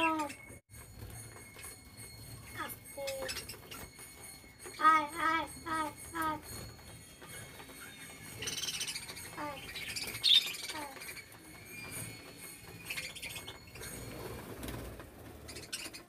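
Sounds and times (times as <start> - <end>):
wings fluttering: 0.0 - 16.0
budgerigars chirping: 15.4 - 16.0.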